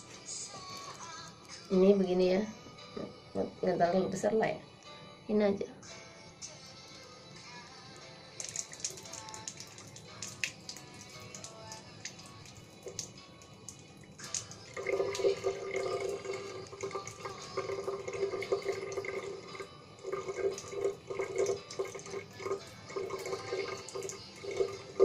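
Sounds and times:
water splashing from nostril: 8.4s - 13.2s.

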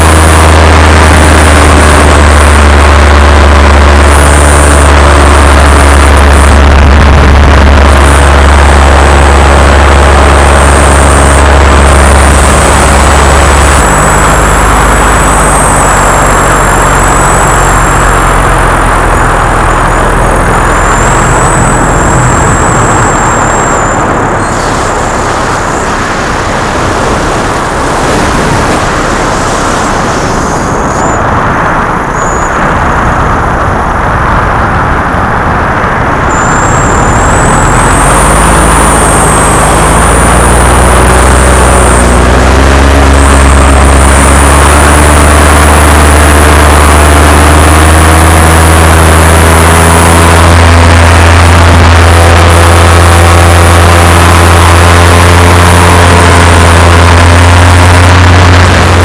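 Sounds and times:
paramotor engine droning: 0.0s - 59.0s.

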